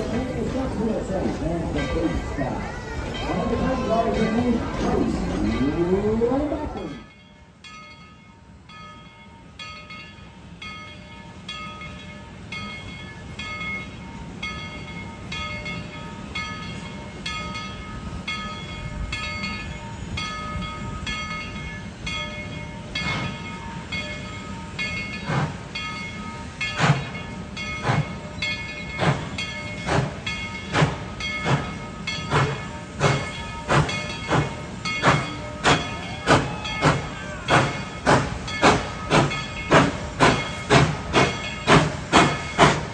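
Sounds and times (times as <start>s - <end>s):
steam locomotive chuffing: 0.0s - 7.1s, 11.3s - 42.9s
locomotive bell ringing: 0.0s - 42.9s.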